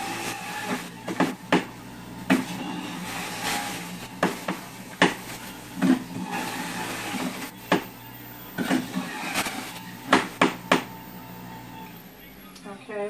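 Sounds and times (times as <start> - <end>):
fruit knocking in juicer chute: 0.0 - 8.0, 8.6 - 11.0
juicer motor humming: 0.0 - 13.0.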